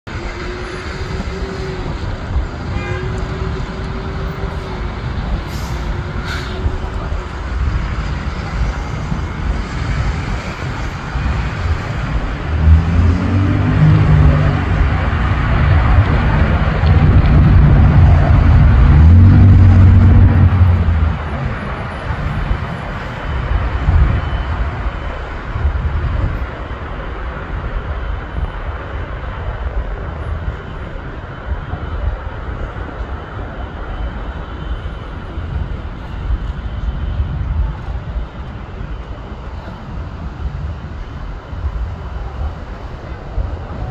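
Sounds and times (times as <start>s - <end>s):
car engine: 0.0s - 24.4s
traffic passing: 0.0s - 43.9s
low rumble: 0.1s - 26.8s.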